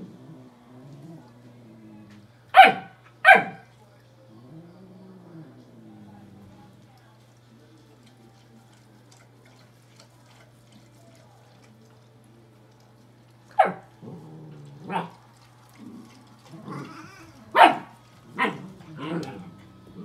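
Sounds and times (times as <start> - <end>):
dog's low grumble: 0.0 - 2.4, 4.3 - 6.8, 13.9 - 17.6, 18.2 - 20.0
puppy barking: 2.6 - 3.7, 13.5 - 13.9, 14.9 - 15.2, 17.5 - 19.6.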